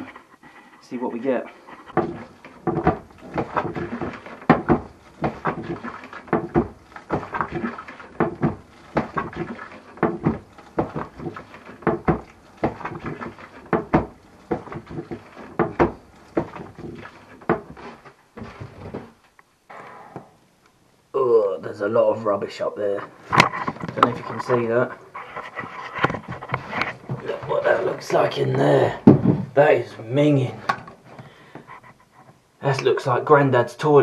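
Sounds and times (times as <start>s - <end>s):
hand bilge pump strokes: 1.0s - 19.2s.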